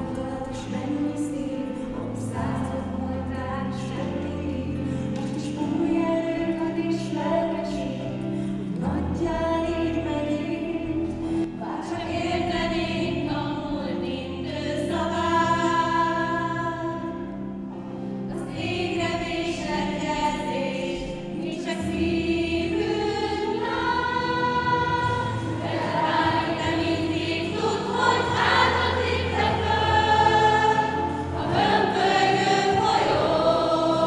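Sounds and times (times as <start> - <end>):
sustained accompaniment chords: 12.4 - 34.0
girls' choir singing: 18.4 - 34.0.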